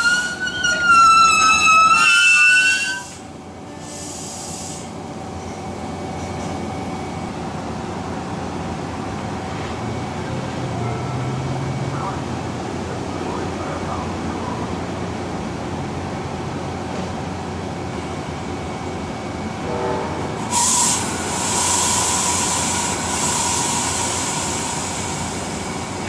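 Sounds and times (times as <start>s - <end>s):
train low rumble: 0.0s - 26.0s
loud air hiss: 2.9s - 5.0s, 20.5s - 26.0s.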